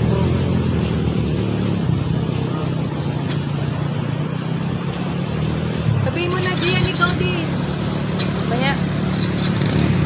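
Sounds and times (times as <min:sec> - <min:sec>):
quad bike engines running: 0:00.0 - 0:10.0.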